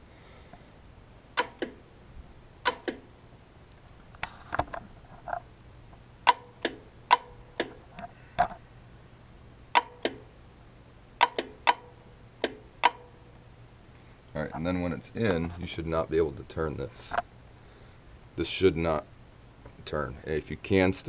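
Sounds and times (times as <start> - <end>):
compressor clutch clicking: 1.4 - 1.8, 2.6 - 3.1, 6.3 - 7.8, 9.8 - 10.2, 11.2 - 13.1.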